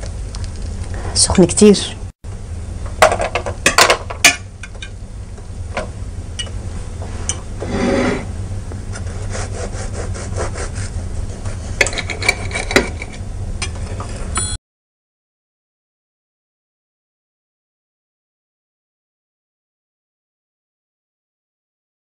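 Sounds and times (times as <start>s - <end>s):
knife sawing through bread crust: 7.6s - 8.3s, 9.0s - 11.6s.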